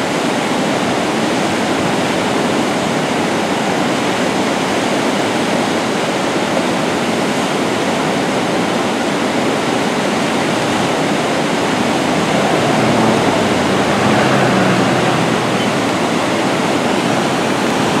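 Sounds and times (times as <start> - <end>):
river water rushing: 10.0 - 18.0.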